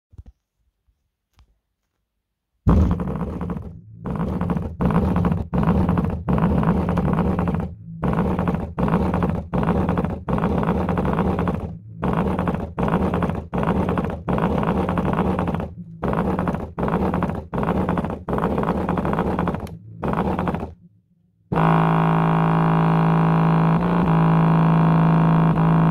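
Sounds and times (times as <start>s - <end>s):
subwoofer bass pulses: 2.7s - 25.9s.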